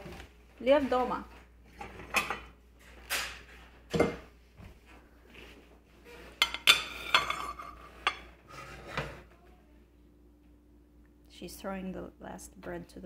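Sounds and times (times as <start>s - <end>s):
dishes clattering: 1.7s - 4.3s, 6.4s - 9.2s.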